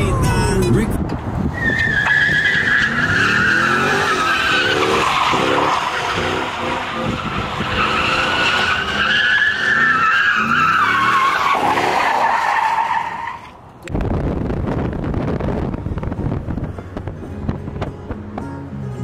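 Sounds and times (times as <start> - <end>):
tyres squealing: 1.6 - 13.6
car engine revving: 2.2 - 12.1.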